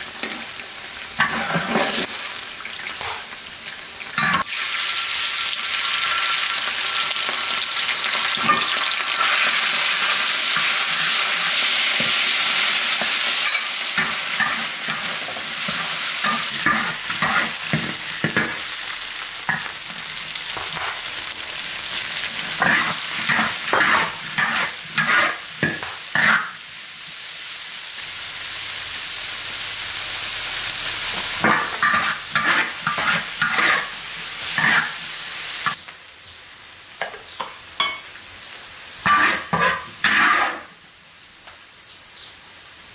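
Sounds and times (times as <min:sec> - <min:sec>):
hot oil hissing: 0:00.0 - 0:40.9
spatula scraping wok: 0:01.1 - 0:02.4, 0:08.3 - 0:26.6, 0:28.8 - 0:35.8, 0:39.0 - 0:40.8.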